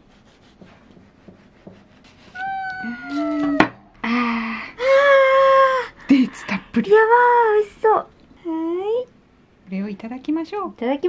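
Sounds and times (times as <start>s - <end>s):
knife slicing through bread: 0.0s - 2.4s
breathy voice sound: 2.4s - 6.8s
knife knocking on wooden board: 3.5s - 3.8s.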